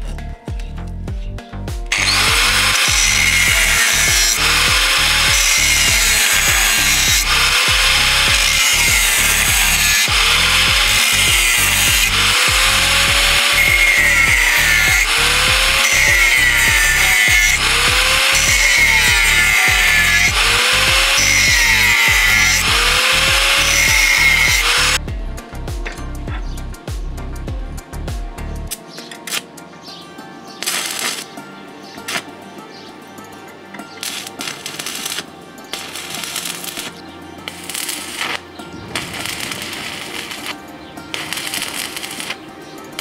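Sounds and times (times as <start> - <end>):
background music: 0.0 - 43.0
angle grinder cutting steel: 1.9 - 25.0, 30.5 - 31.4, 33.8 - 43.0.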